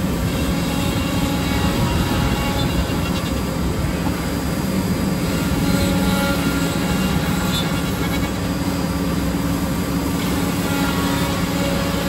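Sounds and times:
milling machine running: 0:00.0 - 0:12.0.

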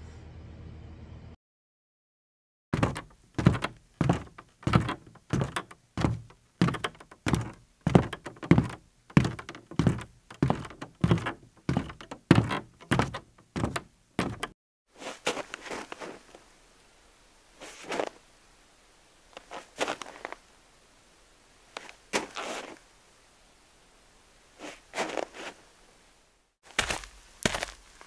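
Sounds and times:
deep percussive thuds: 0:02.8 - 0:14.5.

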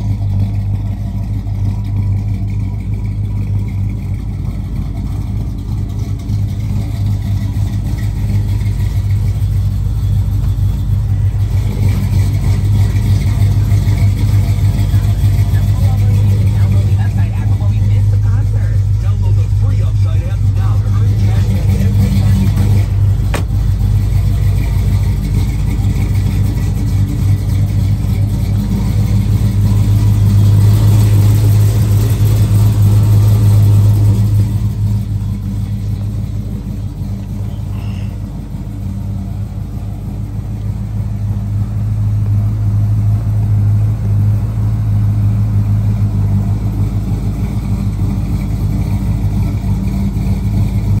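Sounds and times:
pickup engine idling: 0:00.0 - 0:51.0.

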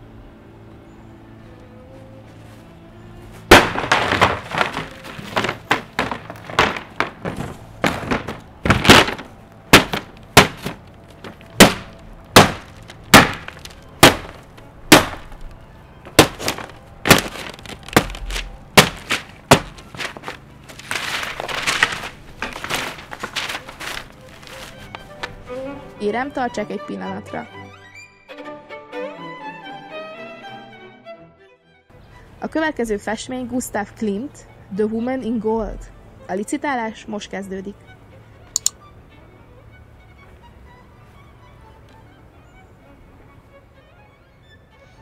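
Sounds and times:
crunching: 0:03.4 - 0:25.6
wooden frame cracking: 0:03.4 - 0:25.6.

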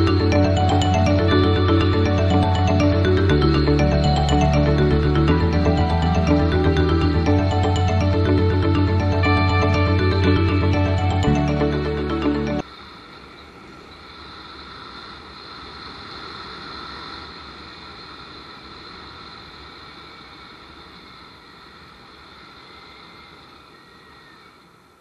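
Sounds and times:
background music: 0:00.0 - 0:12.6.

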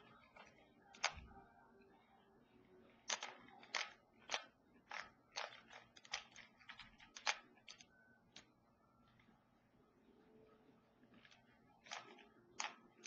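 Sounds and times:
puzzle cube clicking: 0:00.0 - 0:01.4, 0:03.0 - 0:08.5, 0:11.1 - 0:13.0.

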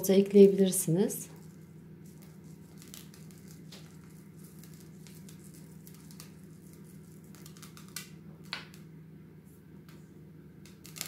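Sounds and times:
steady low hum: 0:00.0 - 0:11.0
chocolate chips ticking on batter: 0:01.4 - 0:08.2.

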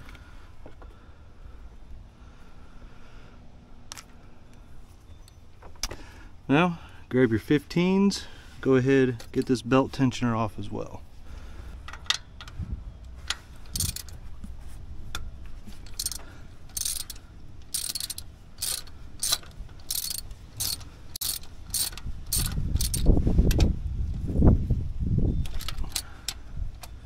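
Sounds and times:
ratchet wrench clicking: 0:13.3 - 0:14.2, 0:15.8 - 0:23.1, 0:25.5 - 0:26.9.

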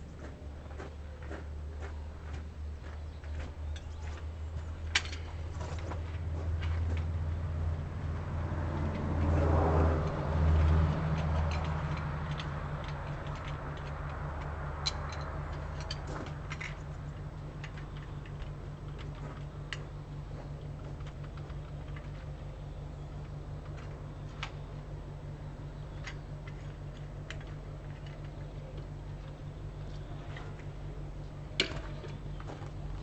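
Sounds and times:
engine idling: 0:00.0 - 0:33.0
light clicks and taps: 0:10.0 - 0:24.8.

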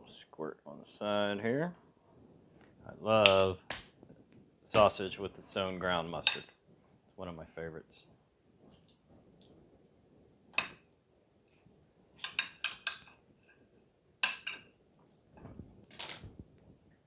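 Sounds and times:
cutlery clinking on a ceramic plate: 0:12.2 - 0:13.2, 0:14.2 - 0:14.7.

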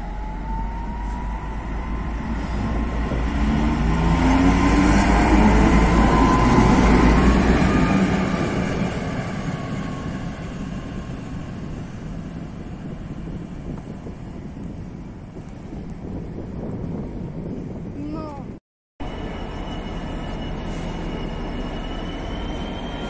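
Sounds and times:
diesel locomotive passing: 0:00.0 - 0:14.5, 0:19.0 - 0:23.0.

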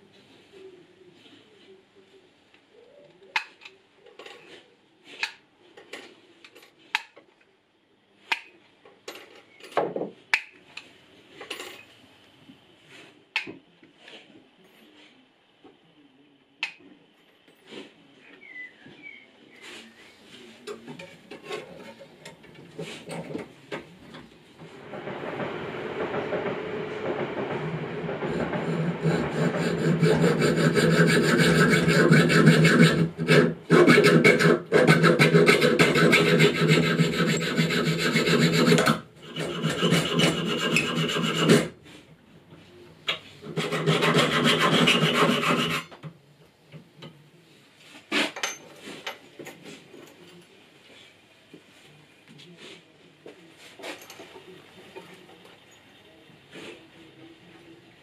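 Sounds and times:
hacksaw cutting brass tubing: 0:28.3 - 0:41.8, 0:43.4 - 0:45.9.

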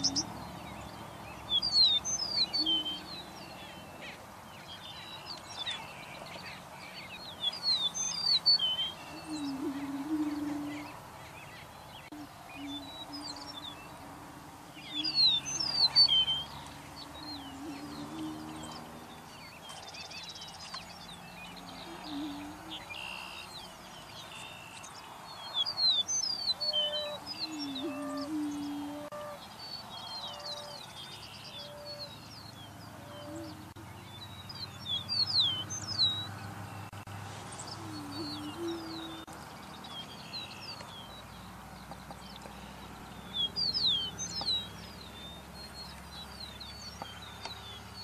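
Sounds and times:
prairie chickens booming hoots: 0:00.0 - 0:19.8, 0:21.1 - 0:24.4, 0:26.5 - 0:40.9
songbird whistled song: 0:00.0 - 0:48.0
bird cackling calls: 0:08.4 - 0:19.2, 0:21.6 - 0:23.7.

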